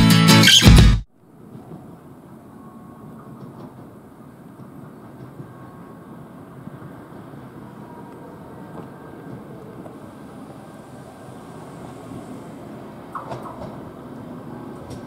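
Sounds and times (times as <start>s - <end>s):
guitar music: 0.0s - 1.0s
faint hum: 1.2s - 15.0s
train rumbling: 1.2s - 15.0s.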